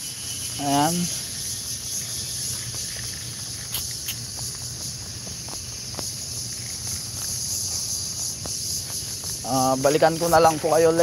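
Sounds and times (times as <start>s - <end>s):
chorus of evening insects: 0.0s - 11.0s.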